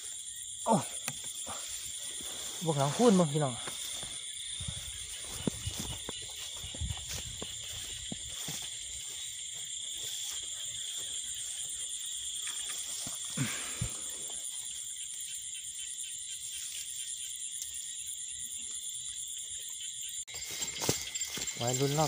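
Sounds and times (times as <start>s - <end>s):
crickets and insects trilling: 0.0s - 22.0s
footsteps through grass: 1.2s - 14.1s, 20.3s - 22.0s.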